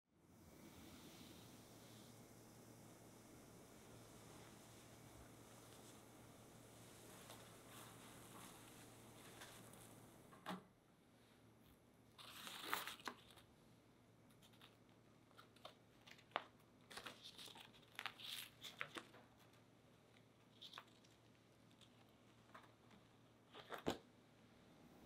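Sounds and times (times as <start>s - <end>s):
paper crinkling and tearing: 12.2s - 13.5s, 14.4s - 19.6s.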